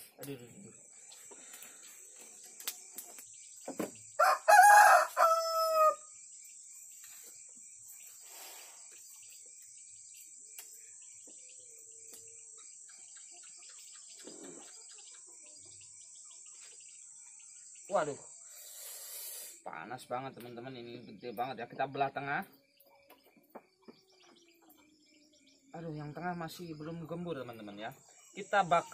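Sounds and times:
insects droning: 0.0 - 28.9
rooster crowing: 4.2 - 6.1.

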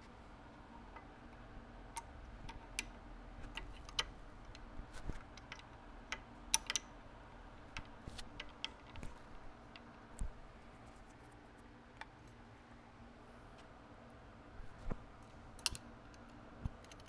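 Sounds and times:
light metallic clicks and taps: 15.6 - 17.0.

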